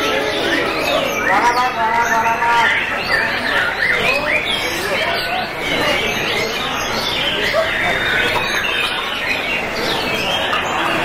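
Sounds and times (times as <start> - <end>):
many birds singing: 0.0 - 11.0.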